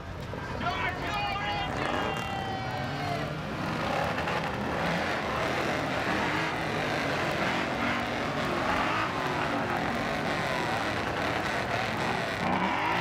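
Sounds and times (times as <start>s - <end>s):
car engine running: 3.0s - 13.0s.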